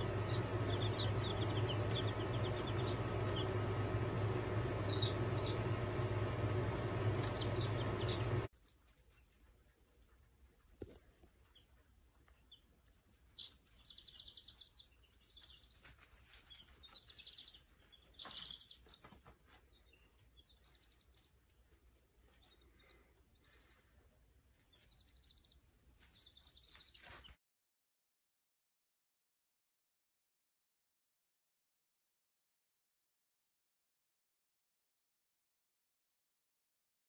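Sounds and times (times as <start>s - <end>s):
chicks peeping: 0.0s - 27.4s.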